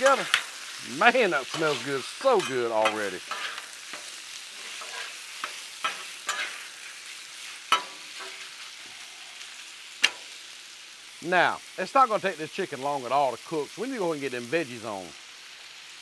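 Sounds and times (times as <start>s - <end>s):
meat sizzling on a griddle: 0.0s - 16.0s
metal spatulas clacking on steel: 4.8s - 6.6s.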